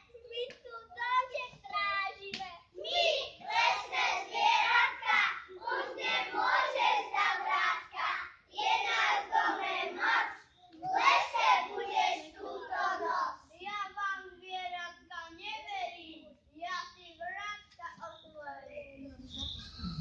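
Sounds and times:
young children singing: 2.8 - 13.4.

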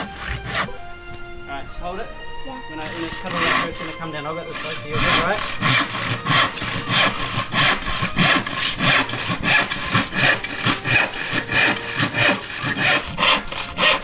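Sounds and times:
handsaw cutting plywood: 0.0 - 0.8, 2.8 - 14.0.

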